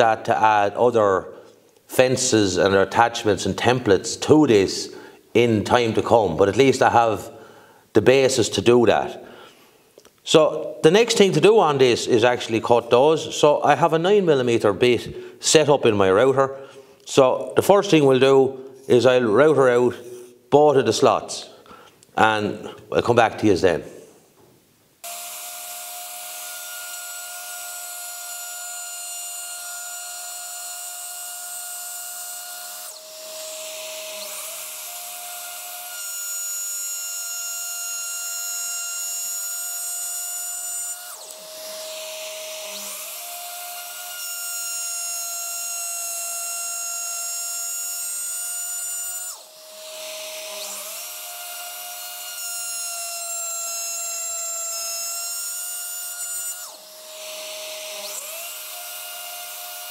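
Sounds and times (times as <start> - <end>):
router cutting wood: 25.0 - 59.9.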